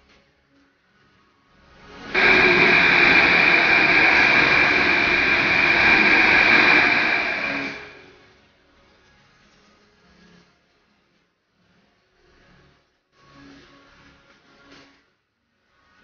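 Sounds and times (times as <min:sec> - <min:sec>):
metro train rumbling: 0:02.1 - 0:08.3.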